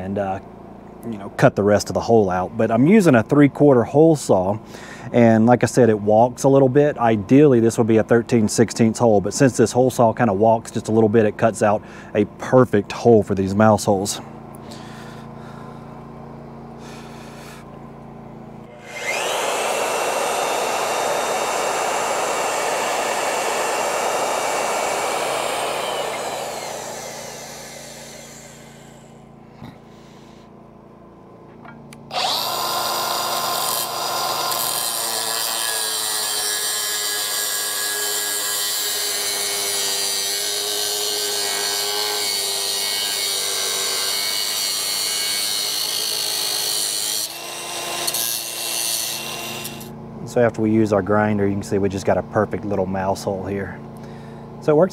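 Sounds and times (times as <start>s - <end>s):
angle grinder cutting steel: 18.7s - 29.3s, 32.1s - 49.9s
drill press hole saw cutting steel: 18.7s - 29.3s, 32.1s - 49.9s.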